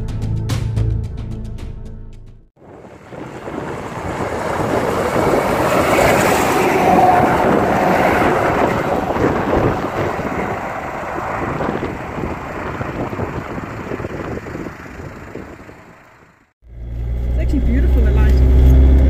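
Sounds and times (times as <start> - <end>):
truck driving past: 2.6 - 19.0.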